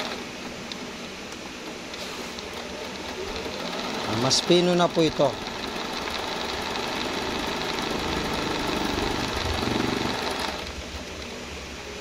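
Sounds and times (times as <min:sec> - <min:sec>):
sewing machine stitching: 0:02.4 - 0:10.7.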